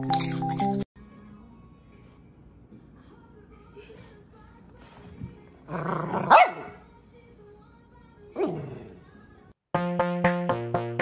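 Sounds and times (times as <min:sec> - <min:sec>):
puppy barking: 0:06.1 - 0:06.8
electronic music with steady beat: 0:09.8 - 0:11.0.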